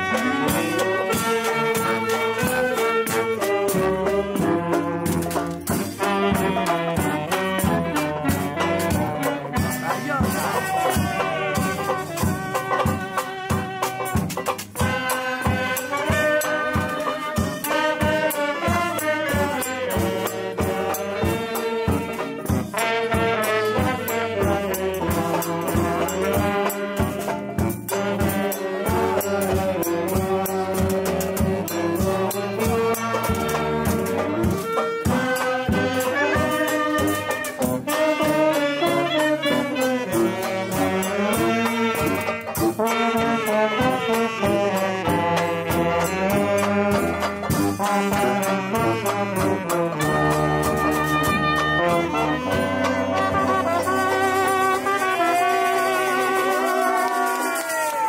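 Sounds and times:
strummed banjo: 0.0 - 57.8
saxophone: 0.0 - 58.0
trombone: 0.0 - 58.0.

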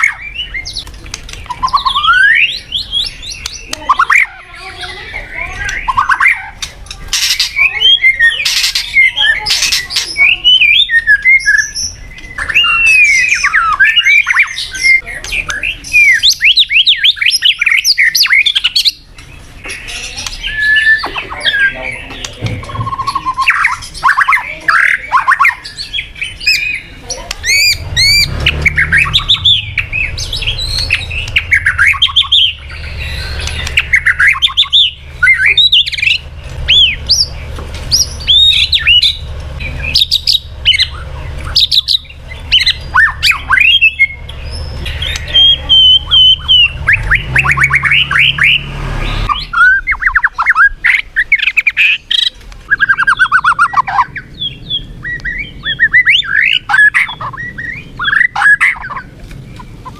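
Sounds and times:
bird singing whistled song: 0.0 - 4.3, 4.9 - 59.9
low steady hum: 18.6 - 59.9.

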